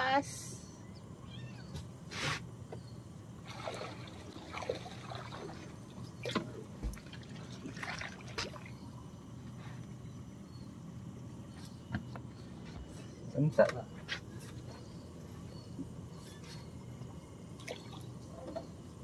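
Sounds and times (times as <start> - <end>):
water lapping against boat hull: 3.4 - 8.8.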